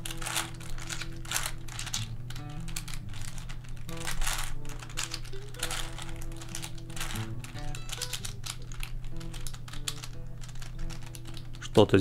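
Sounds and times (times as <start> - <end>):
plastic puzzle clicking and rattling: 0.0 - 12.0
quiet background music: 0.0 - 12.0.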